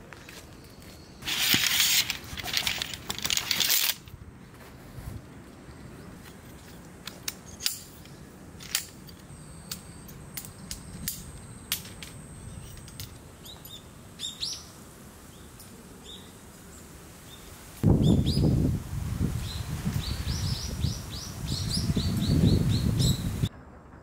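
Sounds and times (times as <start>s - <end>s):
metal tent poles clinking: 1.2s - 4.2s, 6.3s - 13.8s
bird chirps: 19.4s - 23.5s.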